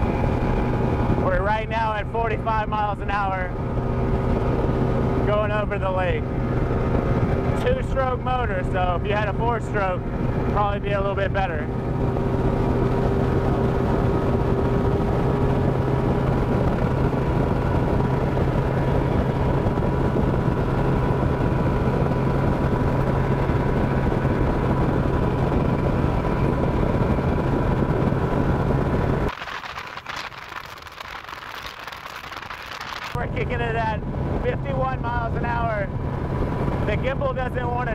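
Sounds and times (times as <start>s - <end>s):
outboard motor droning: 0.0s - 37.9s
wind on microphone: 0.0s - 37.9s.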